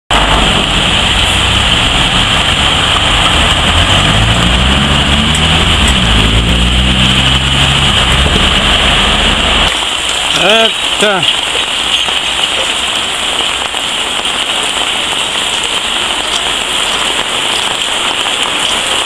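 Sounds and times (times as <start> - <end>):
truck diesel engine passing: 0.1 - 9.8
rain hiss: 0.1 - 19.0
tyres on wet road: 0.1 - 19.0.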